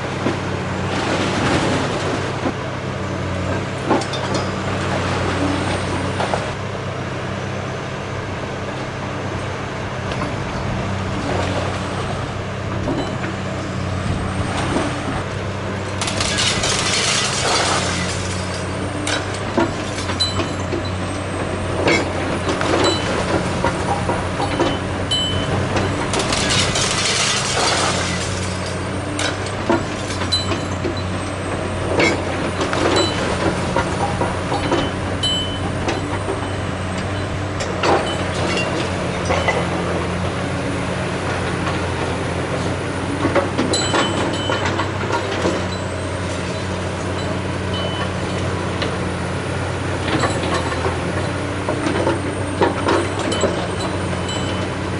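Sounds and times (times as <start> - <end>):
excavator diesel engine running: 0.0 - 54.9
bricks and rubble crashing down: 16.0 - 18.6, 25.8 - 28.7.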